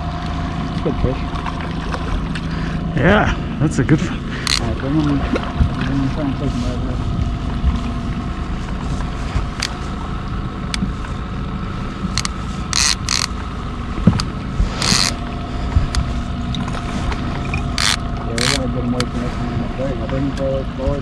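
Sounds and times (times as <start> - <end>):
boat engine running: 0.0 - 21.0
scattered clicks: 4.4 - 4.8, 12.1 - 15.2, 17.4 - 19.1.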